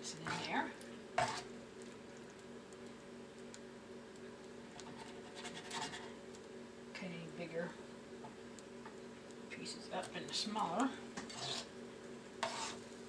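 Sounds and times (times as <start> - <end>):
steady low hum: 0.0 - 13.0
spatula scraping frying pan: 0.2 - 0.6, 1.2 - 1.6, 4.8 - 6.2, 11.2 - 11.8, 12.4 - 13.0.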